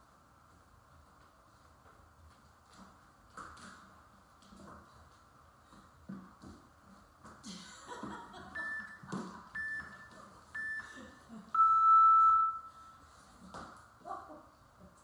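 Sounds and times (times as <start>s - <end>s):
timer beeps: 8.5s - 13.0s
long low timer beep: 8.6s - 9.0s, 9.6s - 13.0s.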